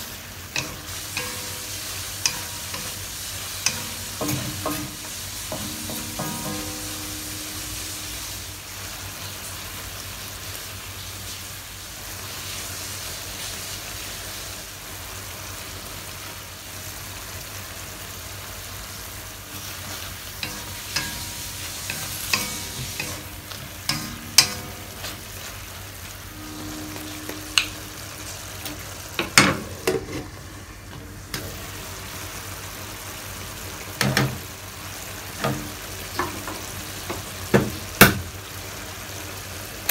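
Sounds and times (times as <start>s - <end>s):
food sizzling in a wok: 0.0s - 39.9s
spatula knocking on wok: 0.6s - 8.4s, 20.4s - 25.3s
wooden spatula scraping wok: 19.5s - 30.5s.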